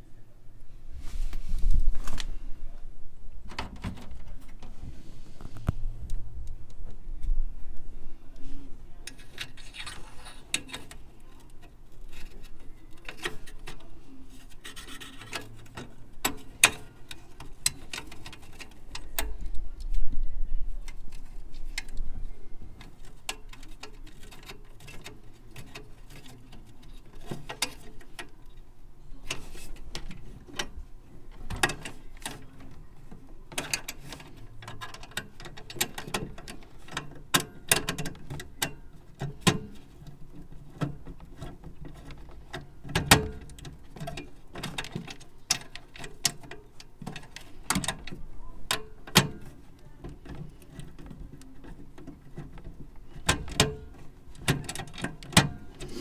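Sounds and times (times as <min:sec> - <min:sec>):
clicks and taps on sheet metal: 0:40.8 - 0:55.9.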